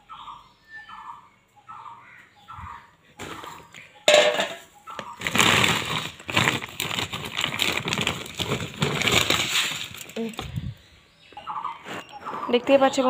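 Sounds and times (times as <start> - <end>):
plastic bags rustling: 3.2 - 10.9.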